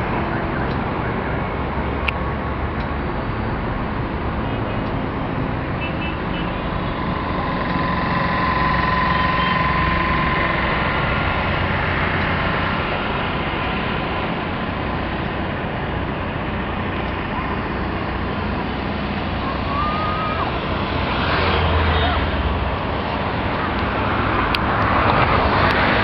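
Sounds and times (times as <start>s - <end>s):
highway traffic noise: 0.0s - 26.0s
vehicle passing: 5.0s - 26.0s
faint steady whine: 6.3s - 15.4s.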